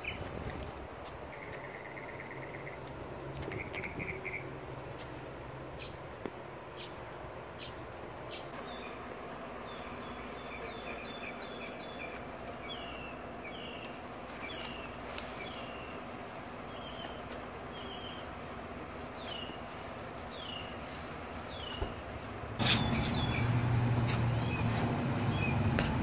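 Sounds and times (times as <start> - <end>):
outdoor background hum: 0.0 - 26.0
small bird chirping: 22.6 - 25.7.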